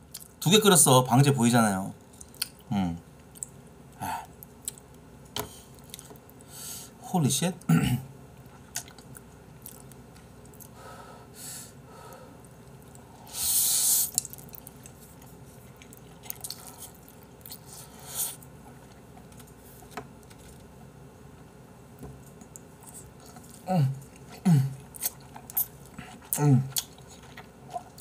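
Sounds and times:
chewing with wet mouth clicks: 0:02.2 - 0:03.6, 0:04.4 - 0:05.0, 0:05.8 - 0:06.5, 0:08.4 - 0:10.8, 0:14.1 - 0:17.7, 0:22.2 - 0:28.0
person slurping noodles: 0:13.2 - 0:14.2.

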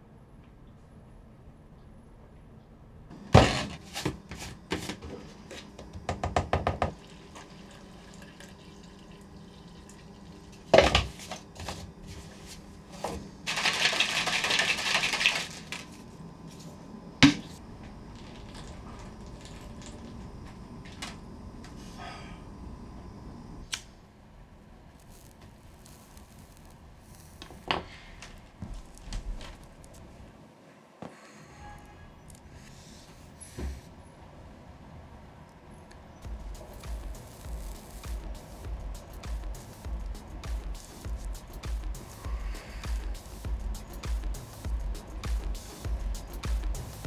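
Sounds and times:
water running from tap: 0:06.9 - 0:10.7.

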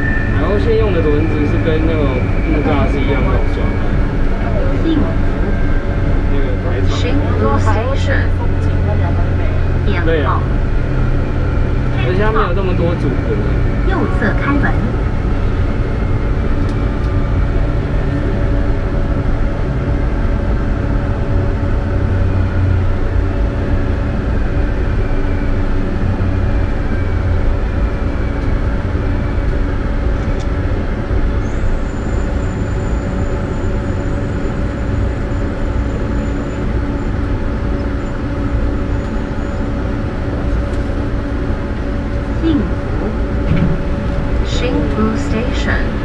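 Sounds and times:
thin high tone: 0:00.0 - 0:07.7
constant hum: 0:00.0 - 0:46.0
train wheels rumbling: 0:00.0 - 0:46.0.

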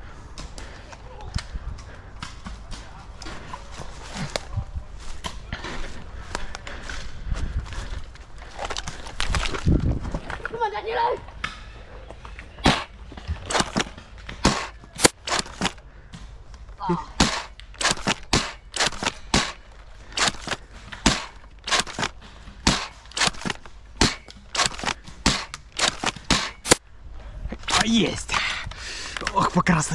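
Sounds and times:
foam dart blasters popping: 0:13.5 - 0:15.7.

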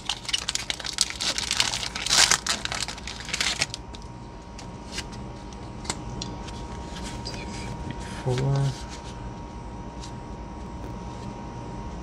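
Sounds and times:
foil wrapper crinkling: 0:00.0 - 0:04.0.

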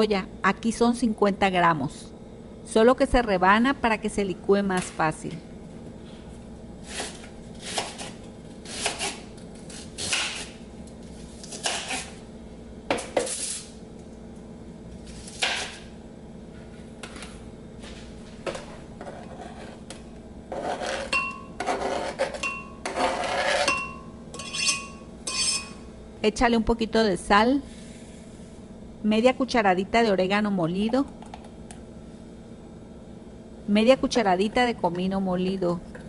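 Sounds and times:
knife scraping board: 0:06.8 - 0:10.6, 0:11.3 - 0:12.2, 0:13.0 - 0:13.7, 0:18.6 - 0:23.8, 0:24.4 - 0:25.7
knife slicing onion on board: 0:06.8 - 0:10.6, 0:11.4 - 0:12.2, 0:19.0 - 0:23.8
glassy ringing: 0:21.1 - 0:21.6, 0:22.4 - 0:22.8, 0:23.7 - 0:25.8.

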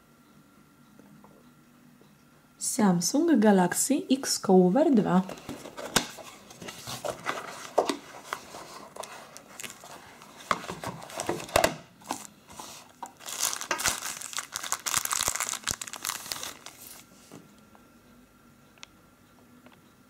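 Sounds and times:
plastic sleeve crinkling: 0:05.3 - 0:17.3.

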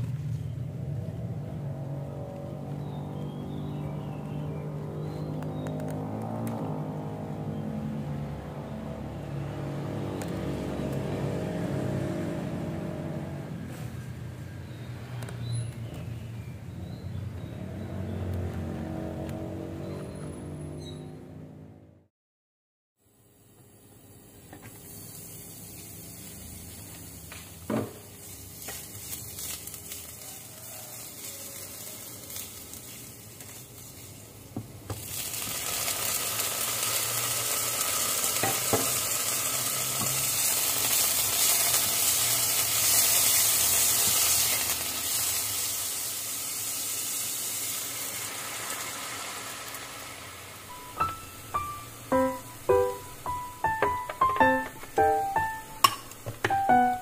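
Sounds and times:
food sizzling in oil: 0:24.6 - 0:57.0.

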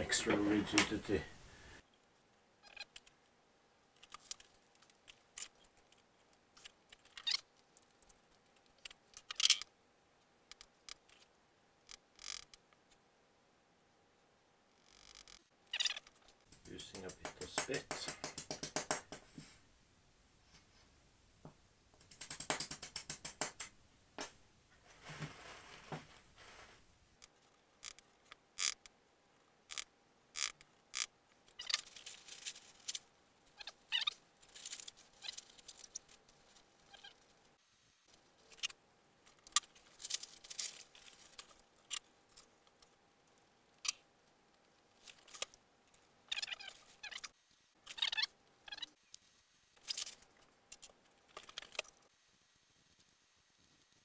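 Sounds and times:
plastic sheeting rustling: 0:24.8 - 0:26.8.

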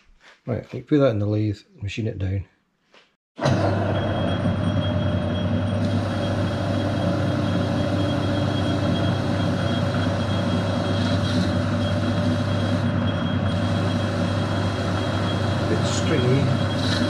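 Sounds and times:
lathe humming with high whine: 0:03.4 - 0:17.0.

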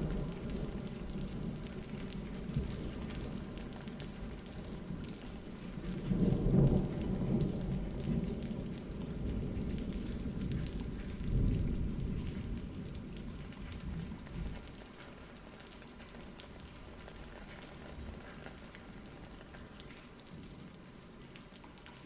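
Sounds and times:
thunder rolling: 0:00.0 - 0:14.6
steady rain: 0:00.0 - 0:22.0.

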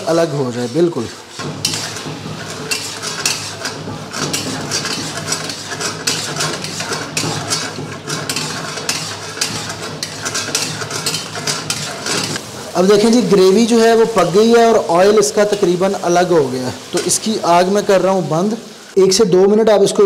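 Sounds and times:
metal spatula scraping a pan: 0:00.0 - 0:12.6.

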